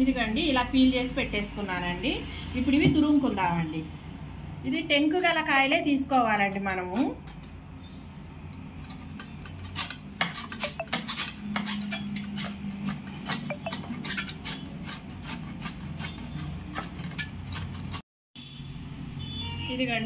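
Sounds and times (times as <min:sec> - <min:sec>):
grater scraping with metal clicks: 0:08.5 - 0:18.0.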